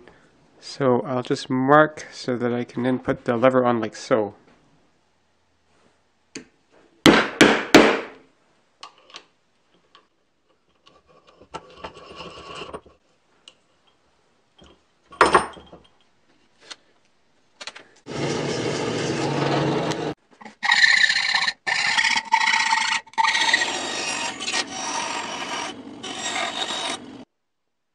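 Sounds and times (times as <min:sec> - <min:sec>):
saw cutting plywood: 0:18.1 - 0:27.3.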